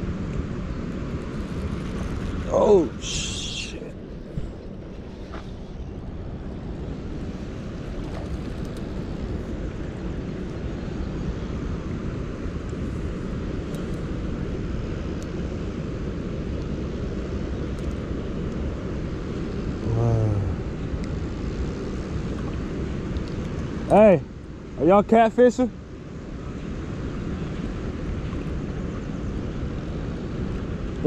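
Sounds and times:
man humming: 0:19.8 - 0:20.8.

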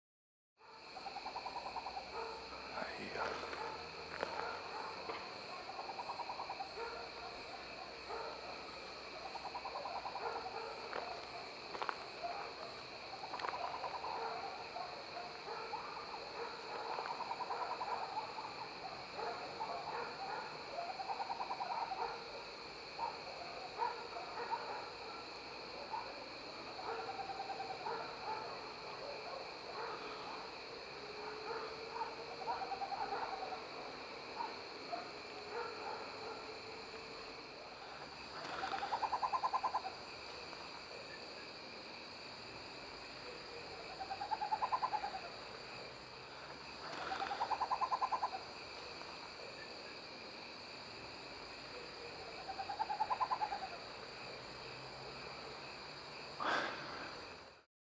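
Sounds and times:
high insect drone: 0:00.6 - 0:57.6
owl purring trills: 0:38.4 - 0:39.9, 0:44.0 - 0:45.3, 0:46.9 - 0:48.4, 0:52.6 - 0:53.8.

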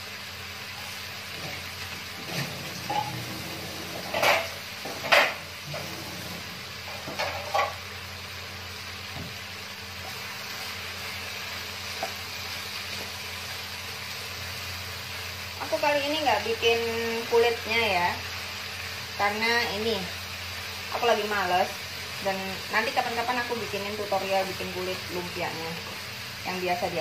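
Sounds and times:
vegetables sizzling in a wok: 0:00.0 - 0:27.0
wooden spatula scraping wok: 0:01.4 - 0:07.8.

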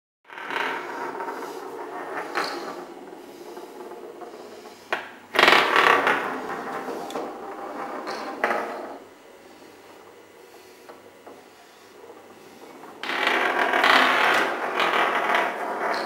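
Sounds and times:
spinning tops rattling on wood: 0:00.3 - 0:09.0, 0:12.6 - 0:16.0.

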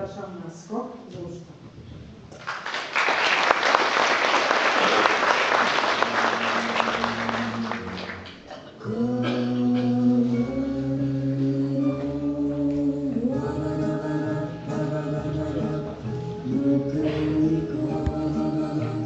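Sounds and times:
audience applauding: 0:02.4 - 0:08.6
music with long held notes: 0:05.8 - 0:19.0.

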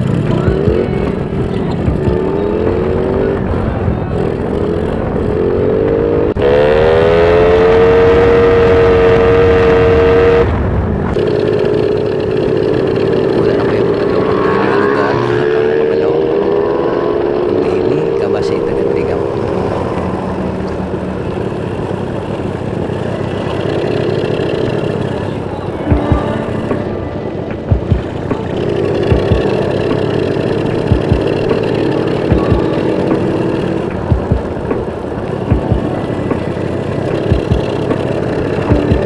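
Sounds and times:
small motorcycle engine revving: 0:00.0 - 0:39.0
wind rush: 0:00.6 - 0:11.3.

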